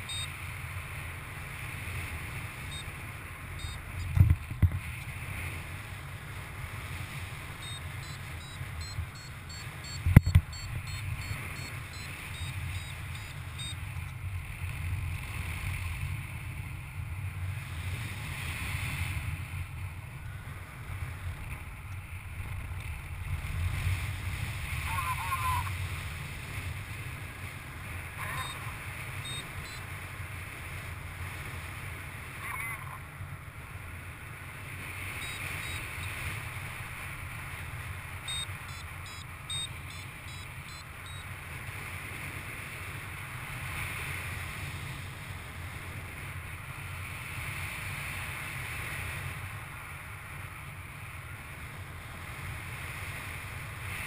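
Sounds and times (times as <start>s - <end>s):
variometer high beeps: 0.0s - 0.4s, 2.6s - 4.2s, 7.2s - 14.2s, 28.2s - 29.9s, 35.2s - 36.3s, 38.2s - 41.3s.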